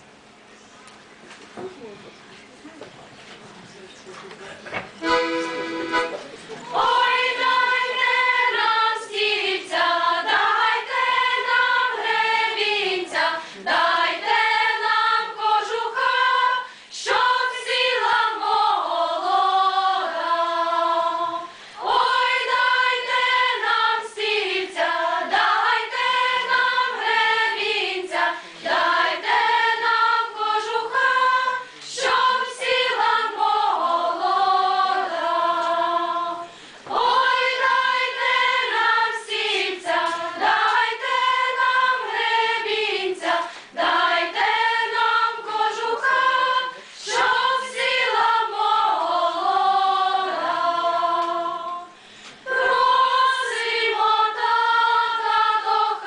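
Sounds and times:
women's choir singing folk song: 5.0 - 6.0, 6.7 - 56.0.

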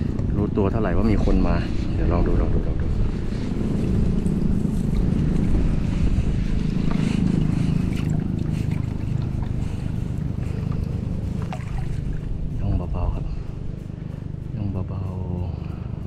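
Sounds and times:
wind buffeting microphone: 0.0 - 16.0
faint ticks: 3.5 - 16.0.

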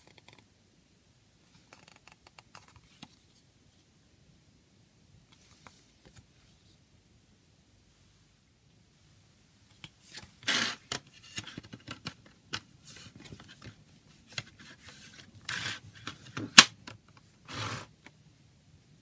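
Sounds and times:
rubbing and scraping of plastic case: 10.1 - 16.7, 17.5 - 17.9.

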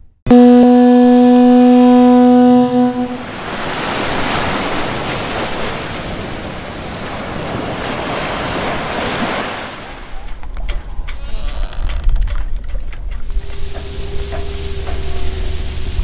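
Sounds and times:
sea surf washing in: 0.6 - 10.1.

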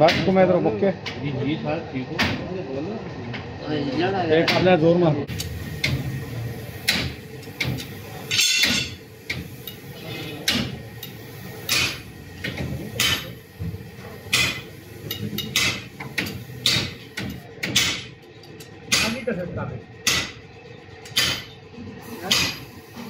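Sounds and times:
hand tools clanking on engine: 14.1 - 19.2.

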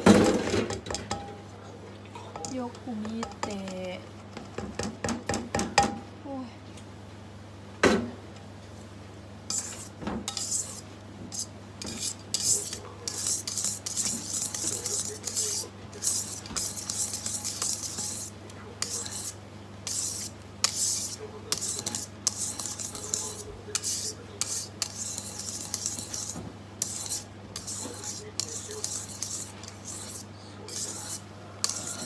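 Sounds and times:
whisk scraping metal bowl: 9.5 - 32.0.

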